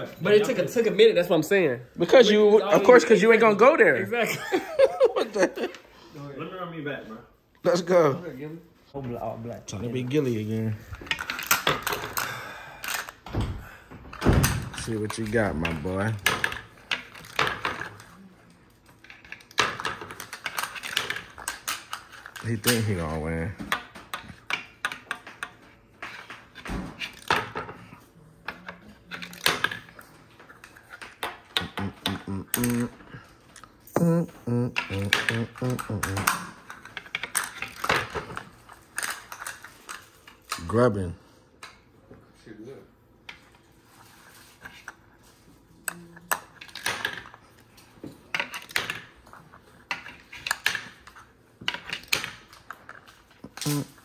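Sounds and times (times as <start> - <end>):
plastic game discs clicking: 18.7 - 27.8, 28.5 - 33.8
plastic discs clicking and clattering: 18.7 - 33.8, 34.8 - 41.8, 45.8 - 54.0.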